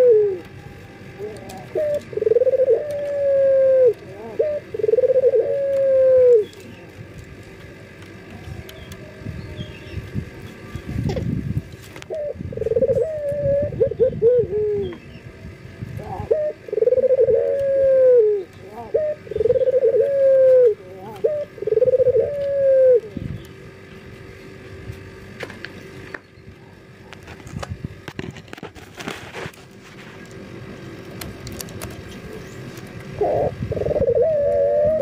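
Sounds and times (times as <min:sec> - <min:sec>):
dove cooing: 0:00.0 - 0:07.0, 0:12.0 - 0:23.9, 0:32.1 - 0:35.0.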